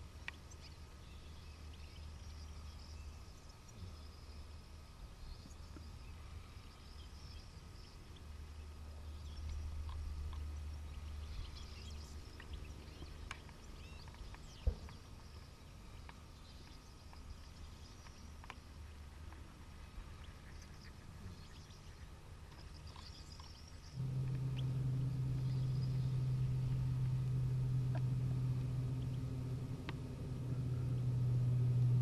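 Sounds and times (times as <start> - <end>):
finches twittering: 24.0 - 32.0
low rumble: 24.0 - 32.0.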